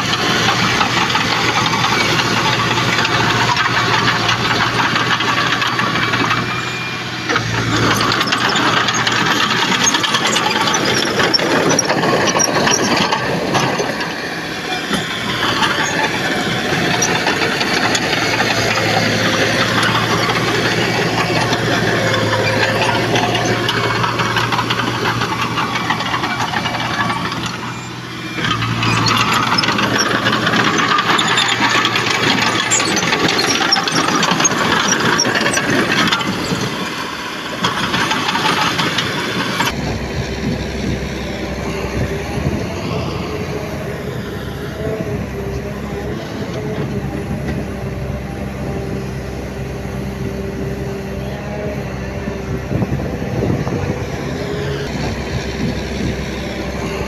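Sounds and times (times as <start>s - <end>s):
heavy machinery diesel engine: 0.0s - 57.0s.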